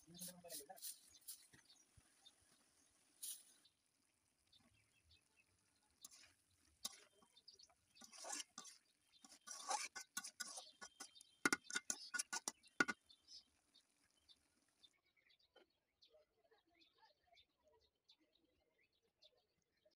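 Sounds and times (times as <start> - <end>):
thick curry being stirred: 0.0 - 14.3
metal spoon knocking against pan: 10.8 - 13.0.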